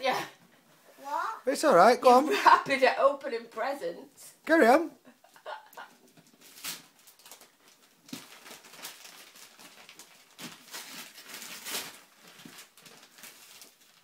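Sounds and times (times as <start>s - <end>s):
wrapping paper rustling and tearing: 6.2s - 14.0s.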